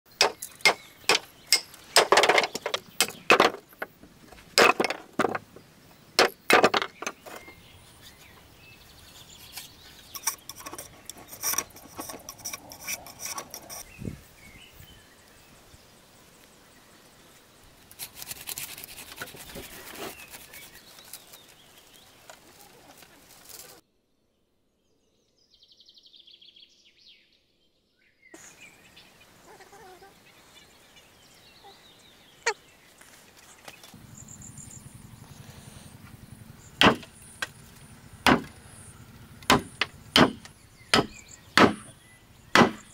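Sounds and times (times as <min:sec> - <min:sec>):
rough rustling: 0:00.1 - 0:14.0, 0:17.8 - 0:23.8
blade striking bamboo: 0:00.2 - 0:04.0, 0:36.8 - 0:37.6, 0:38.3 - 0:38.6, 0:39.4 - 0:42.9
blade scraping bamboo: 0:00.2 - 0:05.4, 0:09.0 - 0:14.0, 0:17.9 - 0:23.8.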